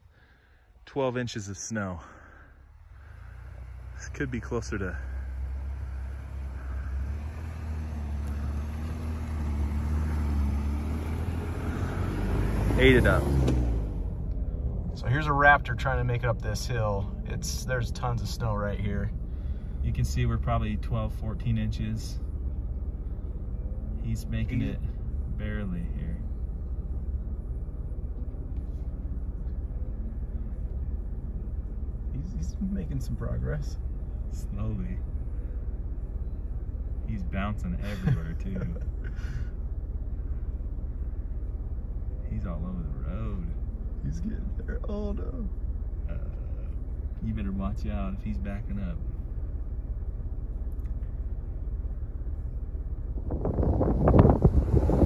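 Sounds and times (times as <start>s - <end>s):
truck engine rumble: 0.0s - 55.0s.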